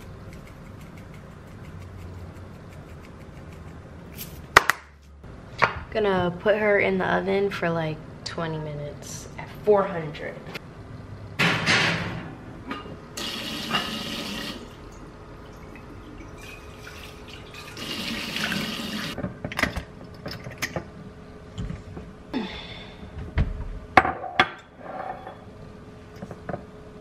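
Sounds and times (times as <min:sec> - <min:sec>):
faucet running into metal sink: 0:16.2 - 0:19.2.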